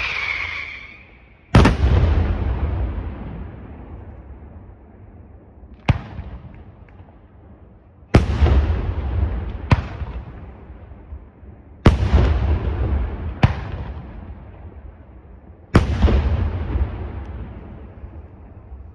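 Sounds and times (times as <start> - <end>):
sharp firework crack: 0.0 - 2.8
firework shells booming: 0.9 - 3.9.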